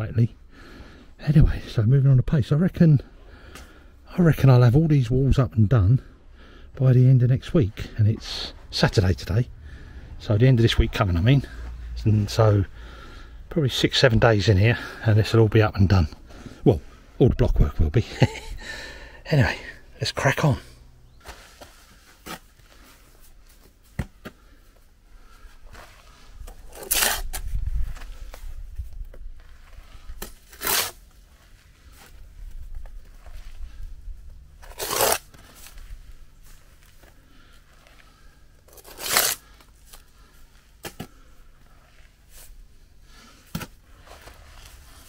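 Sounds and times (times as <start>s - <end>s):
trowel scraping wet mortar: 26.6s - 27.4s, 30.2s - 31.1s, 34.6s - 35.3s, 38.7s - 39.5s.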